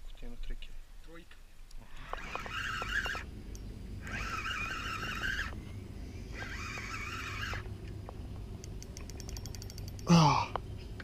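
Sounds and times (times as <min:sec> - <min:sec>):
fishing reel drag buzzing: 0:01.9 - 0:05.6, 0:06.2 - 0:07.7
quick reel clicks: 0:08.6 - 0:10.1.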